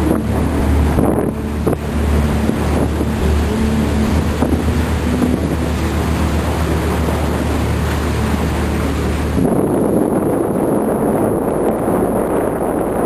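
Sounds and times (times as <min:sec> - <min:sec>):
boat engine rumbling: 0:00.0 - 0:13.0
rushing water: 0:00.0 - 0:13.0
wind noise on microphone: 0:00.0 - 0:13.0.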